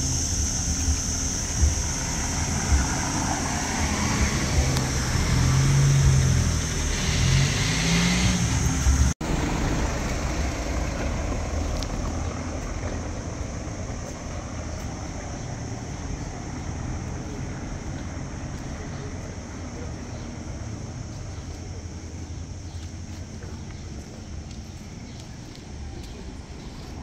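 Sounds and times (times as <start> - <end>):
steady high hiss: 0.0 - 11.0
car passing by: 0.0 - 21.7.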